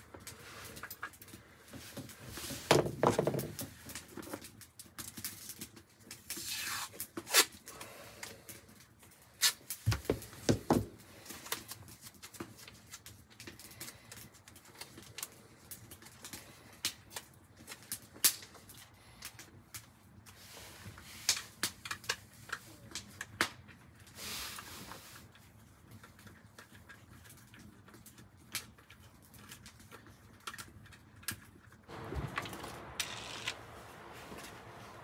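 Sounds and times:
small clicks and light scrapes: 0.0 - 2.7, 3.5 - 9.9, 11.2 - 35.0
rustle: 0.0 - 10.4, 23.8 - 25.9, 31.9 - 35.0.

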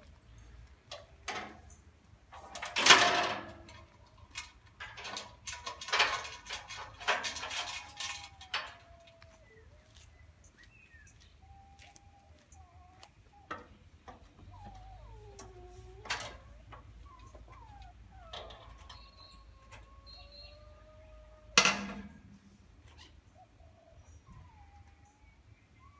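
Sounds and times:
metal guardrails clanking: 0.9 - 8.8, 21.5 - 22.5
thin wavering squeaks: 14.4 - 21.0.

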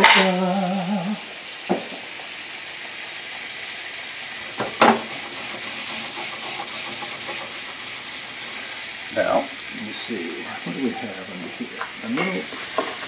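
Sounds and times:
sauce sizzling and bubbling: 0.0 - 13.0
knocks against a pan: 1.7 - 2.0, 4.6 - 5.1.

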